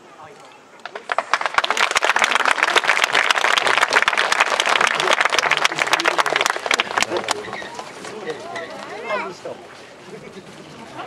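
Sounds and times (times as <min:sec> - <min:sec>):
crowd applauding: 0:00.8 - 0:09.1.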